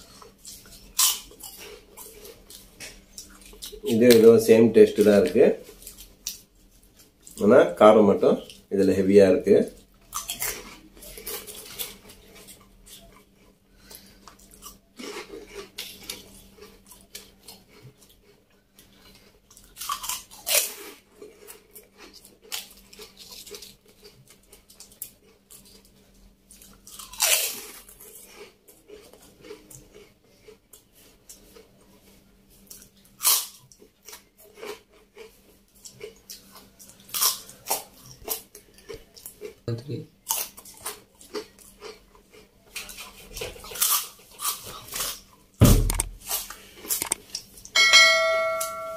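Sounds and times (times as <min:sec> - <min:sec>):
crunchy snacks being chewed: 0:00.0 - 0:08.7, 0:09.5 - 0:47.8.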